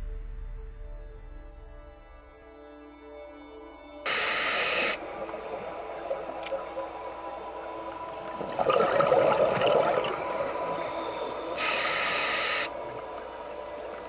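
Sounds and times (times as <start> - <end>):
regulator inhalation hiss: 4.1 - 5.0, 10.6 - 12.9
gurgling rush of exhaled bubbles: 8.4 - 10.7.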